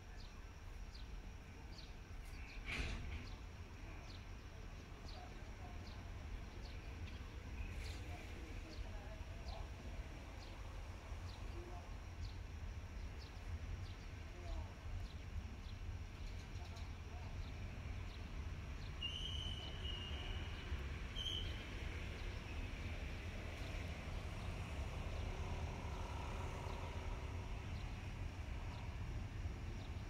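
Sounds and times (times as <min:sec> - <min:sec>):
high whistled calls: 0:18.8 - 0:21.8.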